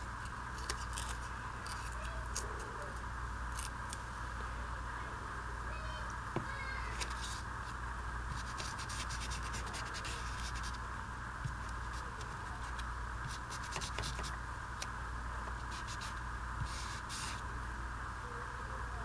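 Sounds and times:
steady background hum: 0:00.0 - 0:19.0
pad scratching on paper: 0:08.3 - 0:10.8, 0:11.5 - 0:14.4, 0:15.5 - 0:17.4.

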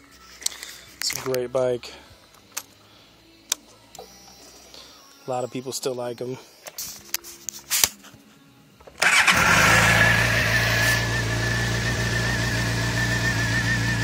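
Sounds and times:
motorcycle engine starting and idling: 0:08.8 - 0:14.0.

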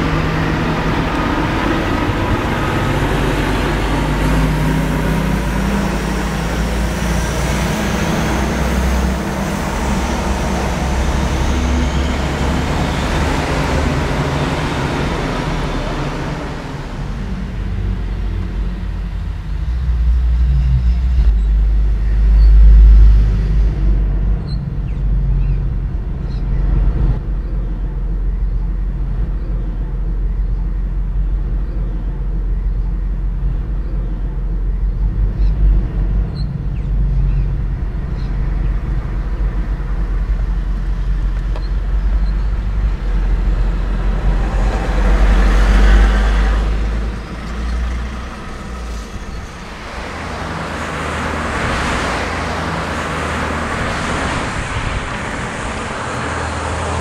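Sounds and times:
traffic engine rumble: 0:00.0 - 0:57.0
truck passing: 0:00.0 - 0:57.0.

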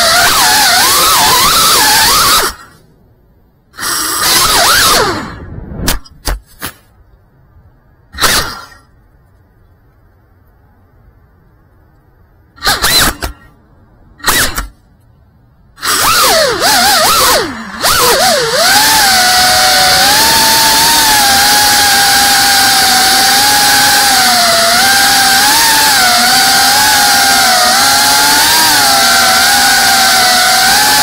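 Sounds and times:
drone motors whining: 0:00.0 - 0:02.9, 0:03.7 - 0:06.4, 0:12.6 - 0:13.6, 0:15.8 - 0:31.0.

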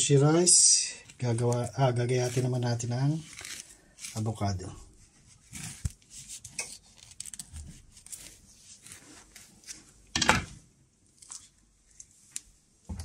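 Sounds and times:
faint scraping and handling: 0:00.8 - 0:10.1
knife cutting avocado: 0:02.1 - 0:04.4.

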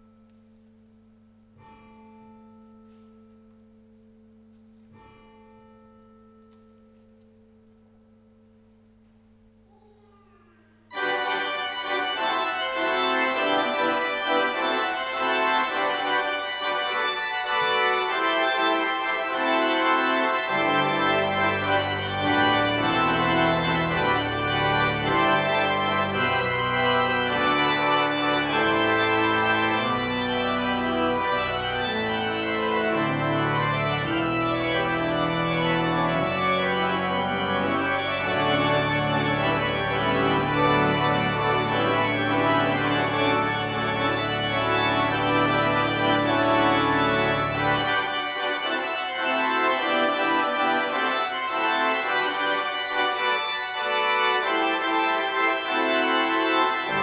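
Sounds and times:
pipe organ chords: 0:00.0 - 0:06.8, 0:10.9 - 0:57.0
deep organ pedal bass notes: 0:11.0 - 0:57.0.

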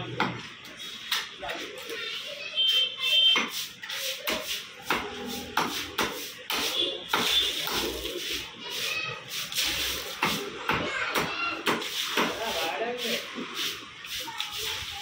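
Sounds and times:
raw meat slapping on stone counter: 0:03.3 - 0:08.5, 0:09.4 - 0:14.8.

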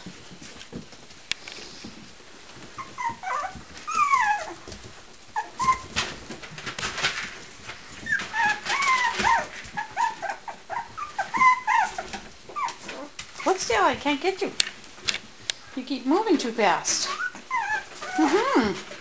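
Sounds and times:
puppies whimpering and yipping: 0:02.6 - 0:06.2, 0:07.9 - 0:13.9, 0:17.0 - 0:19.0.

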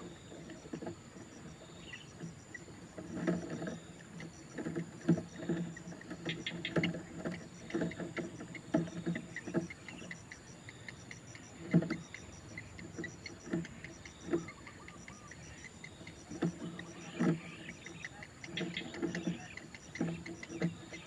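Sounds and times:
heron chicks begging calls: 0:05.3 - 0:21.0.

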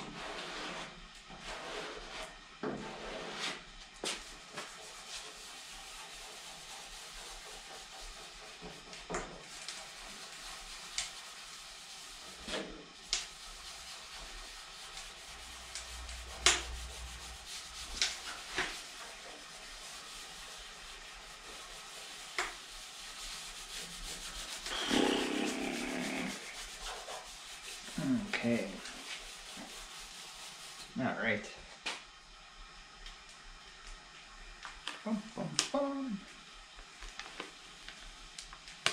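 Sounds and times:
hand rubbing decal paper: 0:00.1 - 0:30.8.

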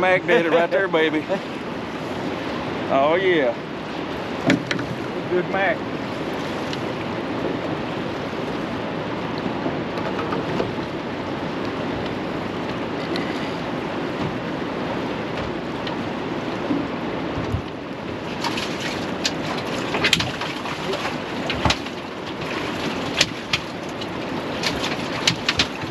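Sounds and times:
river water rushing: 0:00.0 - 0:25.9
light clicks and knocks: 0:09.4 - 0:10.9.

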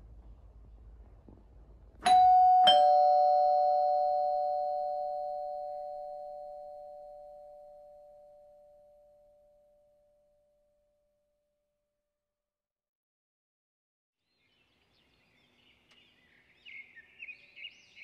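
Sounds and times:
two-tone doorbell chime: 0:02.0 - 0:10.0.

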